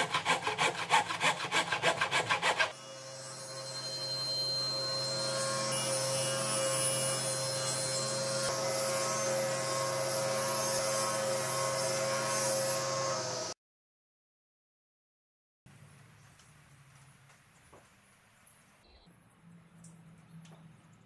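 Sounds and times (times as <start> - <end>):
table saw motor hum: 2.7 - 13.6.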